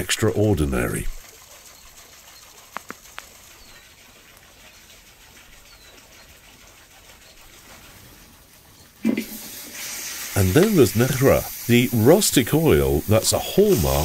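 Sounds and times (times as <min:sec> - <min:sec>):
faint steady hiss: 0:07.8 - 0:14.0.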